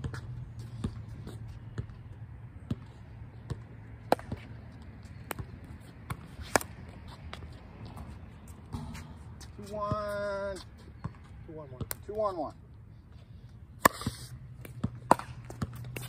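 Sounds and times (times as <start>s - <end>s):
ball bouncing on court: 2.6s - 4.6s, 8.7s - 10.2s, 11.0s - 12.3s, 13.8s - 16.0s.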